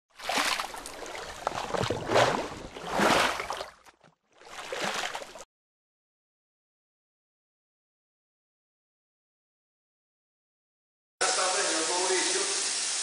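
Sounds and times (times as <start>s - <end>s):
liquid splashing and gurgling: 0.1s - 5.5s.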